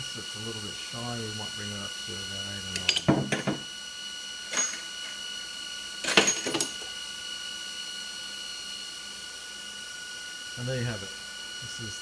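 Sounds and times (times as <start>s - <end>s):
machine high-pitched hum: 0.0s - 12.0s
brass cases clattering on floor: 6.0s - 6.8s.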